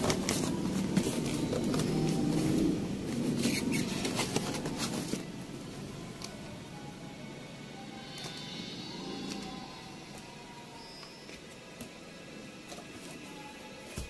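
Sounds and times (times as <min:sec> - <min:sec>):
cardboard scraping rustle: 0:00.0 - 0:05.2.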